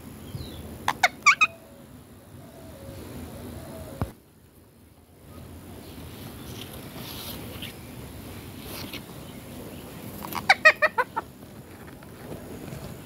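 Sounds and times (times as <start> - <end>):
parakeet harsh calls: 0.9 - 1.6, 10.4 - 11.2.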